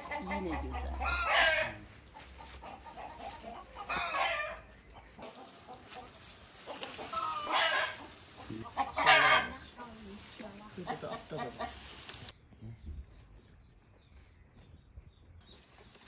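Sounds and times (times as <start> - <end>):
chickens calling: 0.0 - 12.3.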